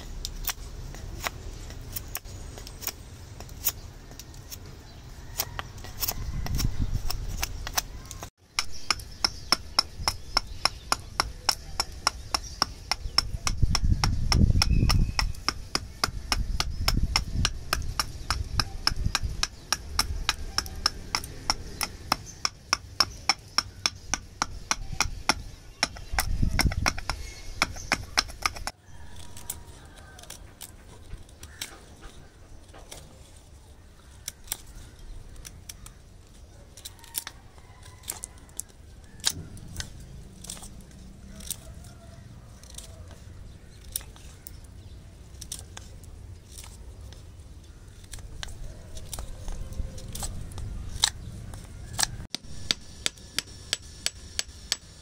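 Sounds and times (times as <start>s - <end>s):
knife striking dry wood: 0.0s - 4.7s, 5.3s - 31.9s, 45.4s - 55.0s
knife shaving wood: 0.0s - 53.6s.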